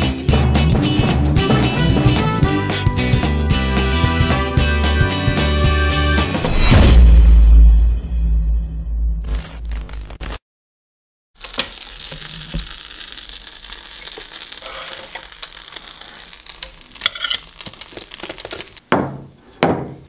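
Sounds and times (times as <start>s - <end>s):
sandwich sizzling on grill: 11.4s - 18.9s
utensil scrapes and clicks: 13.9s - 18.8s.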